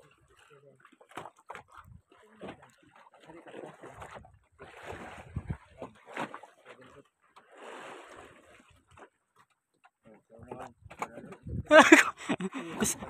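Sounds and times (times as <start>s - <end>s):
sea water splashing against hull: 0.0s - 9.1s.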